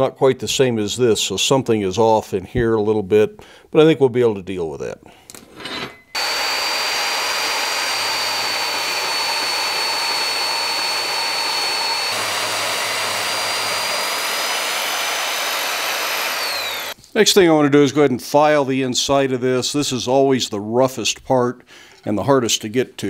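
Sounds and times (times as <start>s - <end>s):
bandsaw cutting steel: 5.6s - 17.0s.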